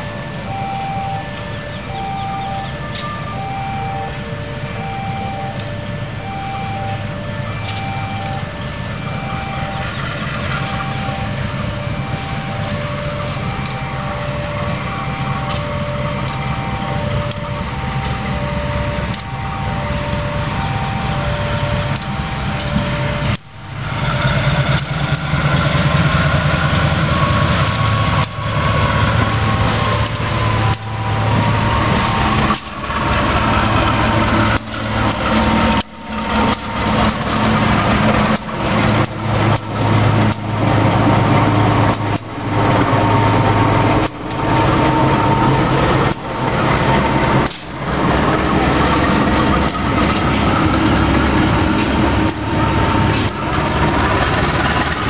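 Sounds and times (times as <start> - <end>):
coaches rumbling on rails: 0.0 - 55.0
locomotive engine hum: 0.0 - 55.0.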